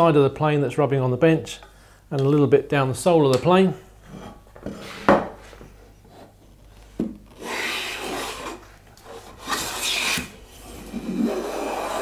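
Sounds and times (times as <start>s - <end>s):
hand plane rasping along wood: 7.4s - 10.2s, 10.8s - 12.0s.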